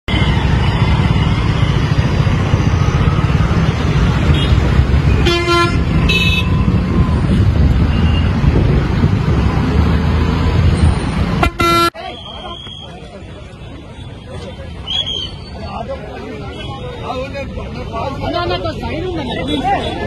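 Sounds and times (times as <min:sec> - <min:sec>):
auto-rickshaw engine rumbling: 0:00.1 - 0:20.0
vehicle horn beeping: 0:04.3 - 0:06.6, 0:11.4 - 0:12.8.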